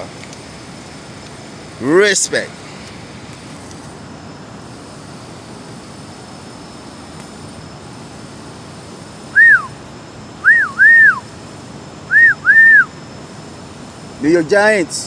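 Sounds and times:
steady low hum: 0.0s - 15.0s
person whistling: 9.4s - 9.7s, 10.4s - 11.2s, 12.1s - 12.9s.

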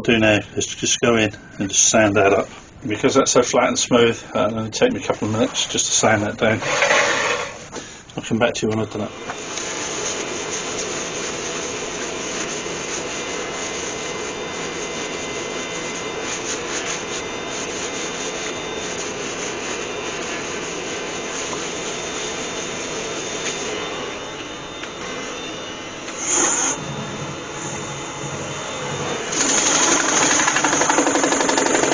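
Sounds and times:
abrasive sanding wood: 6.5s - 7.6s, 9.4s - 26.9s, 27.6s - 31.9s
wood lathe running: 6.6s - 7.6s, 21.0s - 31.9s.

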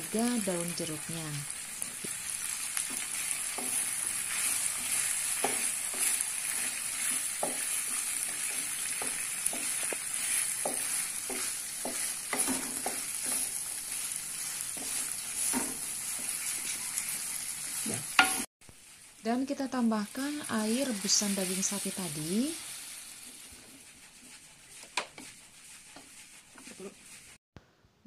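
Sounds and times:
spice paste sizzling in a wok: 0.0s - 27.4s
spatula scraping and knocking pan: 1.8s - 18.5s, 23.3s - 27.4s.

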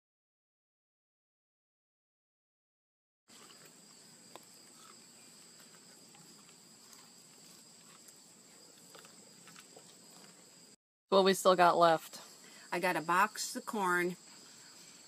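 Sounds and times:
crickets chirping: 3.3s - 15.0s.

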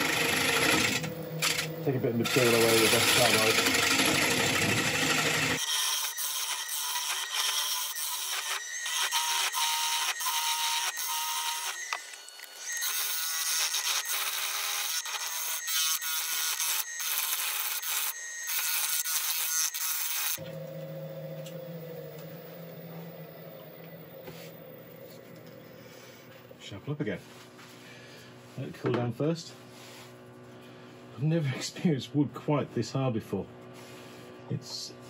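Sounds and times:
lathe humming: 0.0s - 5.6s, 20.3s - 26.7s.

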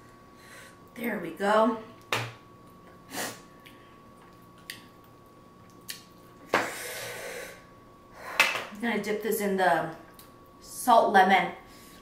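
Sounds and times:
noisy nasal breaths: 6.6s - 8.5s.

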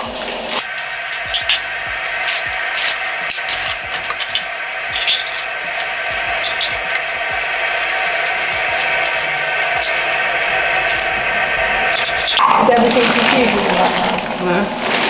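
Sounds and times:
plastic bag crinkling: 12.1s - 15.0s.

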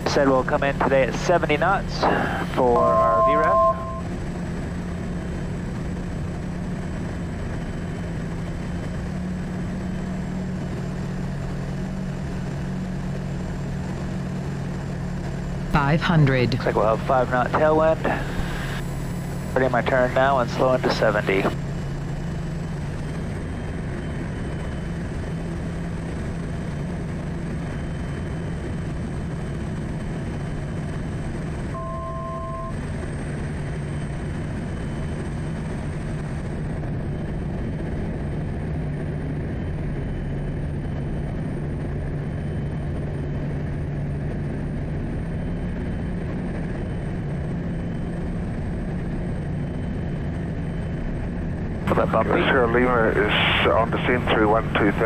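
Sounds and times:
turbine engine and propeller droning: 0.0s - 55.0s
two-tone beep: 2.6s - 4.1s, 31.8s - 32.8s.

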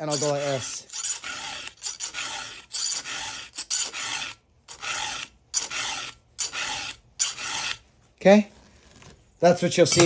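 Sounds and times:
file rasping on chainsaw chain: 0.0s - 7.8s.

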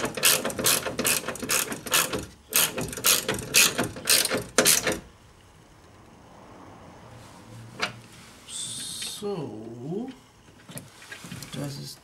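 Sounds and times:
ratchet wrench clicking: 0.0s - 5.0s.

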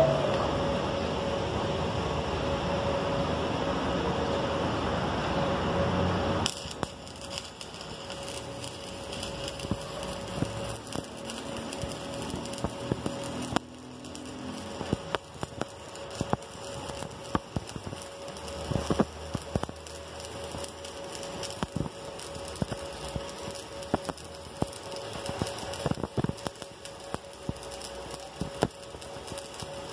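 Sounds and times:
steady hiss: 0.0s - 29.9s
welding arc crackling and popping: 5.0s - 29.9s.

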